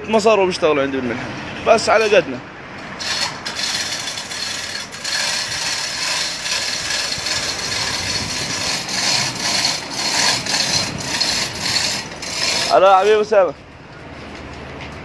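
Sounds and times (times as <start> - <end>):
chain running through pulley block: 3.0 - 13.2.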